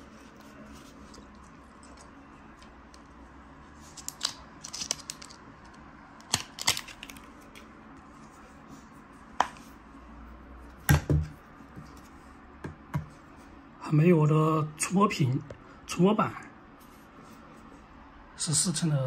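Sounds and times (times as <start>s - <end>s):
cable and packaging rustling: 3.8s - 7.7s.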